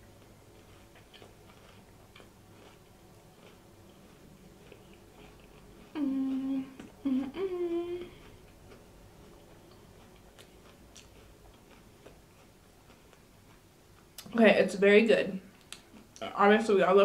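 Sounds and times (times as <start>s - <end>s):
faint chewing clicks: 0.1s - 7.4s, 8.0s - 14.4s, 15.5s - 16.3s
woman humming with enjoyment: 5.9s - 8.3s.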